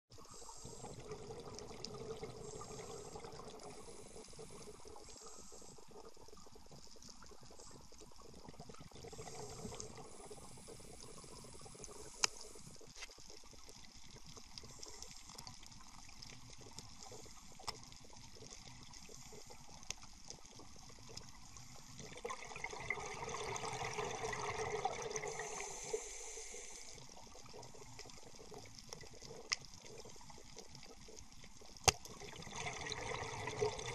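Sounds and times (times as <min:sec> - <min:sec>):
regulator hiss underwater: 0:00.2 - 0:06.1, 0:09.0 - 0:12.9, 0:21.5 - 0:27.6
exhaled bubbles rushing: 0:00.7 - 0:05.1, 0:22.0 - 0:25.7, 0:32.1 - 0:33.9.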